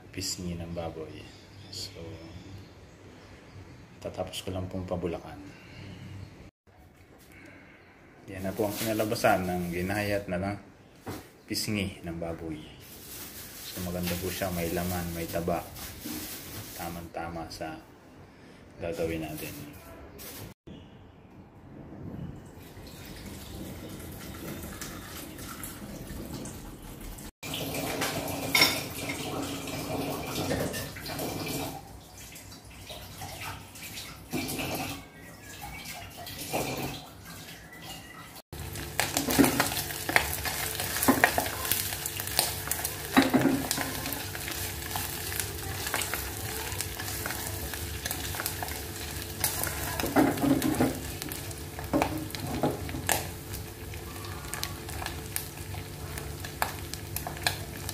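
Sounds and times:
pork sizzling in a pan: 0:38.6 - 0:57.9.

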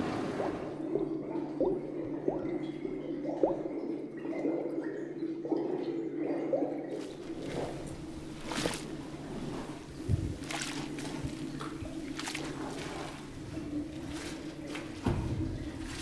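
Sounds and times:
airlock bubbling: 0:00.0 - 0:16.0
low steady hum: 0:07.0 - 0:16.0.

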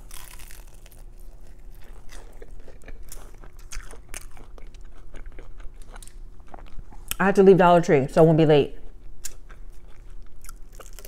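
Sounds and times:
crunching crispy food: 0:00.0 - 0:06.8, 0:09.2 - 0:11.0.

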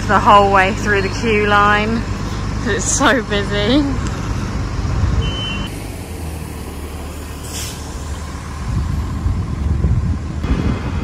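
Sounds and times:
bus engine rumbling: 0:00.0 - 0:11.0
air brakes hissing: 0:07.3 - 0:07.9.

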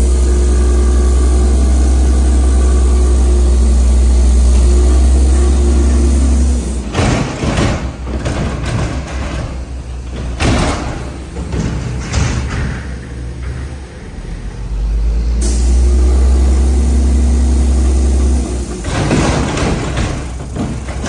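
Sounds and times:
garbage truck engine revving: 0:00.0 - 0:21.0
clanking and banging from packer: 0:04.4 - 0:14.2, 0:18.2 - 0:21.0.

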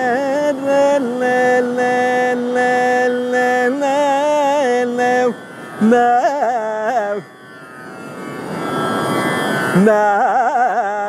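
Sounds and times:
man singing: 0:00.0 - 0:07.3, 0:09.7 - 0:11.0
tambura drone: 0:00.0 - 0:11.0.

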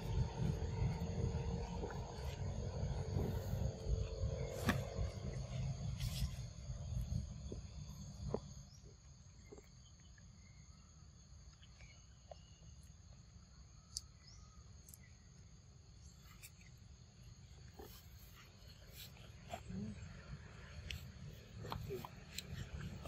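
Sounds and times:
low rumble: 0:00.0 - 0:08.8
high insect drone: 0:00.0 - 0:11.4
faint clicks and chirps: 0:08.3 - 0:15.5.

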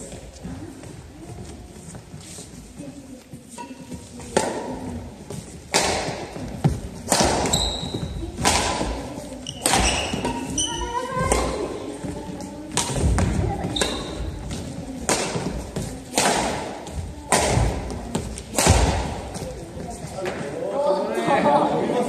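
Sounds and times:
shoe squeaks: 0:03.5 - 0:04.0, 0:07.4 - 0:08.3, 0:09.4 - 0:11.3, 0:13.6 - 0:14.3
rackets hitting shuttlecock: 0:03.6 - 0:19.5.

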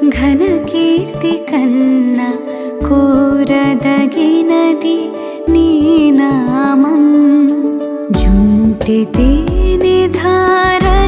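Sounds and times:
instrumental accompaniment: 0:00.0 - 0:11.0
woman singing: 0:00.0 - 0:11.0
deep bass: 0:08.2 - 0:11.0.

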